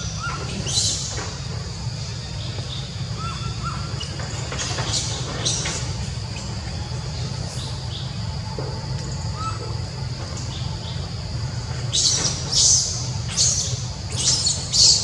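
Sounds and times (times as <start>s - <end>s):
steady high hum: 0.0s - 15.0s.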